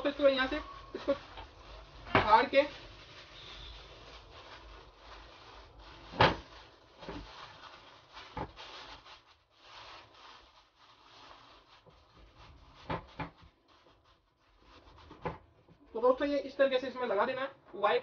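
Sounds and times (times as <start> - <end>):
plastic sheet tearing and crumpling: 0.1 - 15.4.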